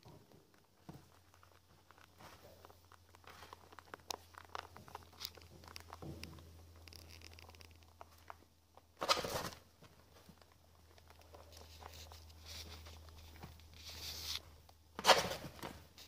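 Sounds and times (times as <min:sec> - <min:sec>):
rabbits nibbling dry food: 0:00.0 - 0:16.0
rustling in wood shavings: 0:11.1 - 0:14.5.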